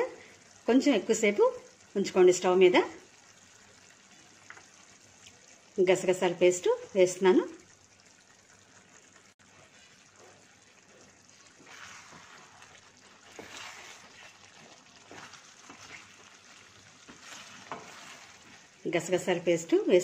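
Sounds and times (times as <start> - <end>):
curry stirred with wooden spatula: 8.0 - 19.3.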